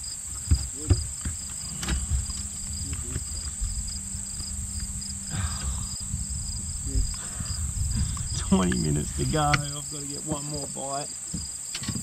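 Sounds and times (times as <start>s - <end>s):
steady low hum: 0.0s - 11.7s
wind rumbling on microphone: 0.0s - 12.0s
short rustling: 0.2s - 12.0s
knocks on boat deck: 0.3s - 3.6s.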